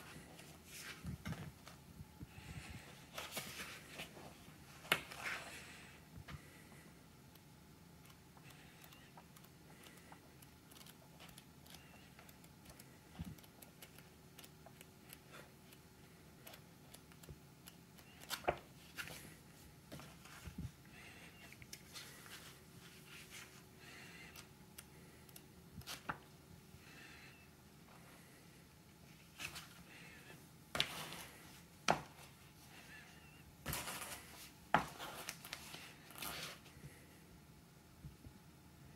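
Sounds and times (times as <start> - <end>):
book pages rustling: 0.0 - 1.8, 3.1 - 5.4, 18.0 - 20.6, 29.2 - 29.8, 33.6 - 36.7.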